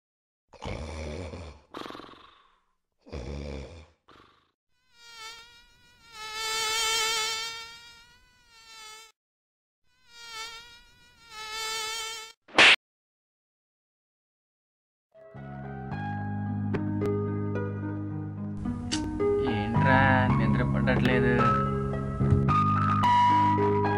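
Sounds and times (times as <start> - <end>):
mosquito whine: 4.7 - 9.2, 9.9 - 12.4
sharp loud smack: 12.5 - 12.8.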